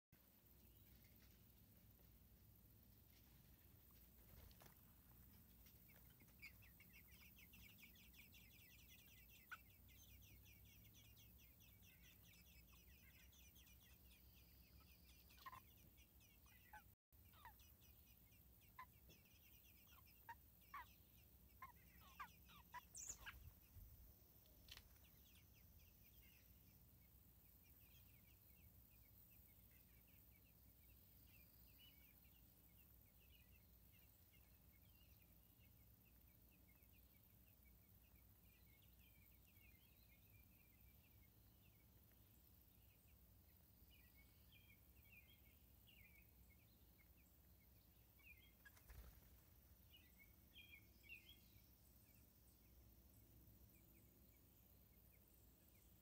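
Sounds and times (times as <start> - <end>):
nestlings chittering: 22.0 - 23.4.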